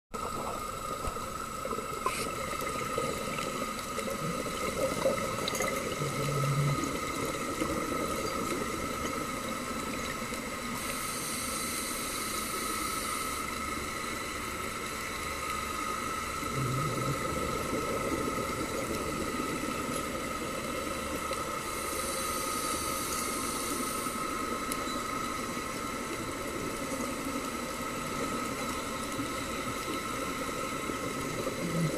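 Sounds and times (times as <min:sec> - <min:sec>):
underwater exhalation bubbles: 0:01.8 - 0:09.0, 0:16.4 - 0:19.6, 0:31.2 - 0:31.9
regulator hissing inhalation: 0:10.8 - 0:13.5, 0:21.6 - 0:24.5.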